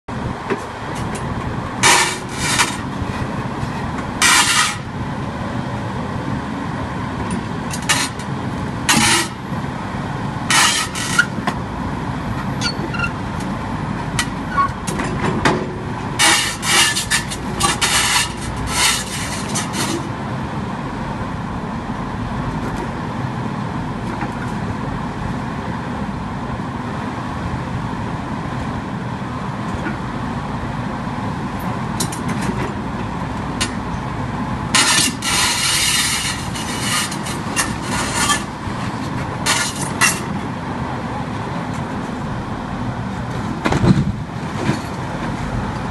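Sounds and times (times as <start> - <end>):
excavator diesel engine running: 0.1 - 45.9.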